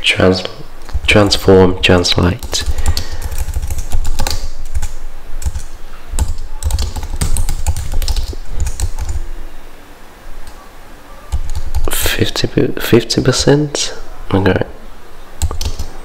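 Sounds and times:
keyboard typing: 0:02.4 - 0:09.2, 0:11.3 - 0:11.9, 0:15.4 - 0:16.0.

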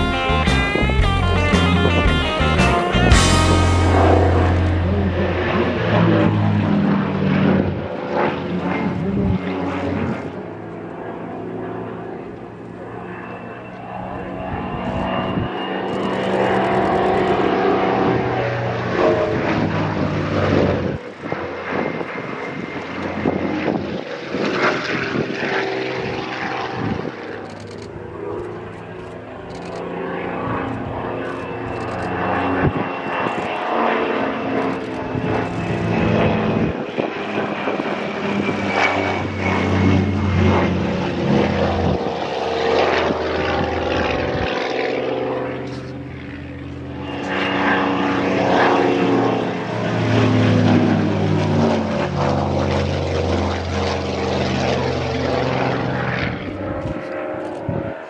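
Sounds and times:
propeller aircraft engine overhead: 0:00.0 - 0:58.0.

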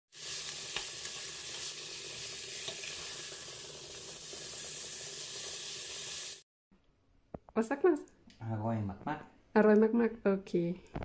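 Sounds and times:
meat sizzling in a pot: 0:00.1 - 0:06.4.

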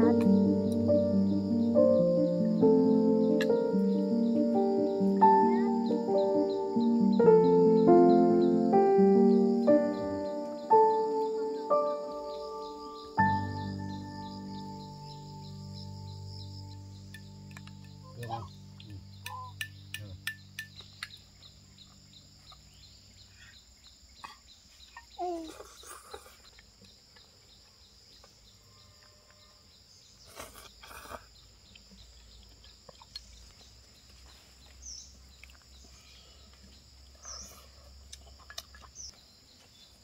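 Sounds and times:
high insect drone: 0:00.0 - 0:31.5
bird calls and chirps: 0:00.0 - 0:40.0.

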